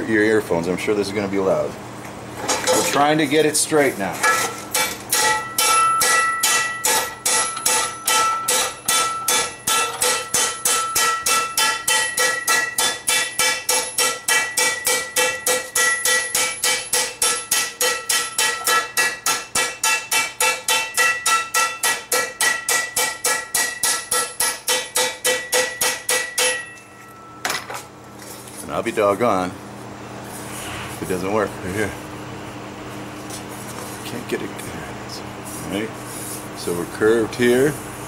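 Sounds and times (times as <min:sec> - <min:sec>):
hammer striking steel pan: 0:04.2 - 0:27.6.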